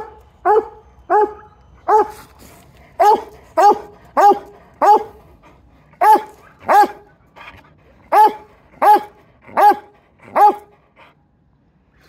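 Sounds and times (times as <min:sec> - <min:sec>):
hound dog barking: 0:00.0 - 0:02.1, 0:03.0 - 0:05.2, 0:06.0 - 0:07.1, 0:08.0 - 0:10.8.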